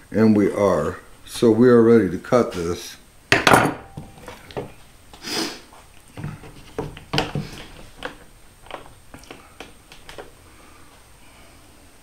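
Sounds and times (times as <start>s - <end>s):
knocks of wood and plastic: 6.2s - 10.3s.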